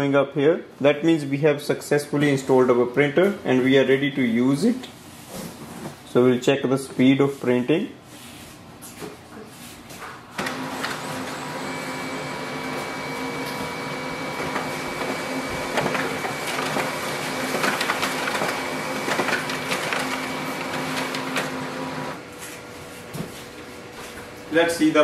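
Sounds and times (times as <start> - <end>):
fan hum: 0.0 - 25.0
paper feeding clicks: 10.4 - 22.2
laser printer whirring: 10.4 - 22.8.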